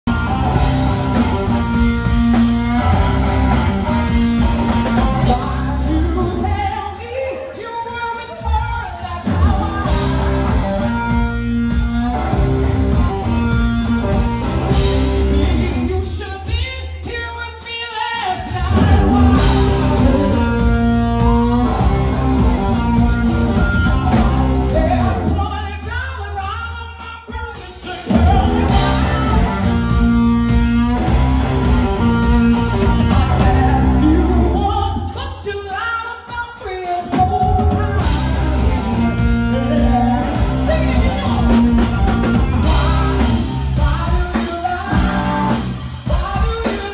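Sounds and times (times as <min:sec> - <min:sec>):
live rock band: 0:00.0 - 0:46.9
woman singing: 0:02.7 - 0:12.3, 0:15.2 - 0:21.9, 0:32.2 - 0:46.9.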